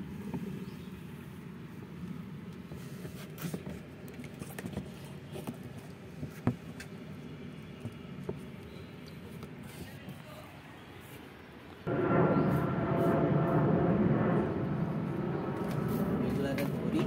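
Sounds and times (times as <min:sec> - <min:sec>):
low background rumble: 0:11.8 - 0:17.0.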